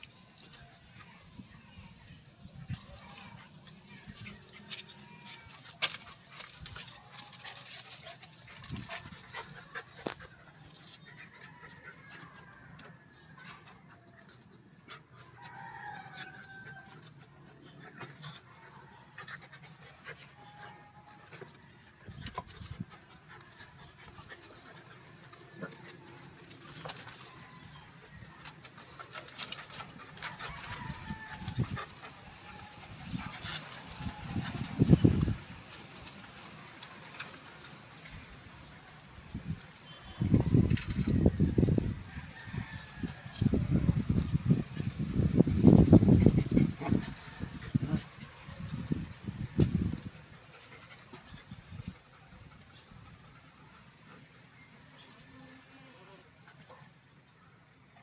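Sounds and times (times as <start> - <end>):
dog paws scuffling on concrete: 2.7 - 17.2, 17.9 - 39.1.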